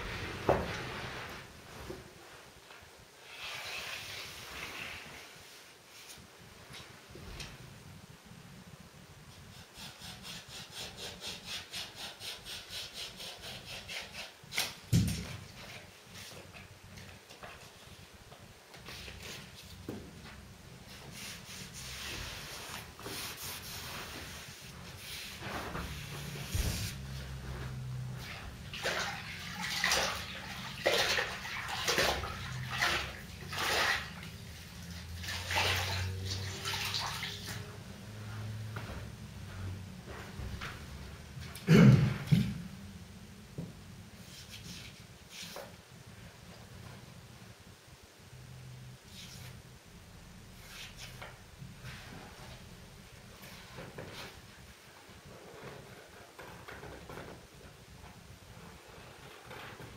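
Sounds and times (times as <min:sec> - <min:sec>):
brush swishing on wall: 0:00.0 - 0:02.1, 0:18.8 - 0:41.1, 0:50.5 - 0:54.6
rubbing on wooden skirting board: 0:20.9 - 0:28.3.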